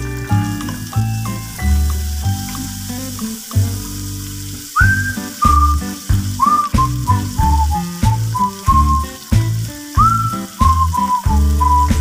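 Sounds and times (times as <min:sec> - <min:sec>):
background music: 0:00.0 - 0:12.0
food frying in oil: 0:00.0 - 0:12.0.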